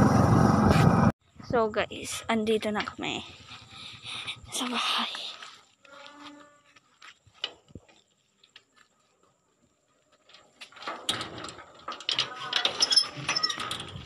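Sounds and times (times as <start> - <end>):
metal gate rattling and clanking: 10.4 - 14.0.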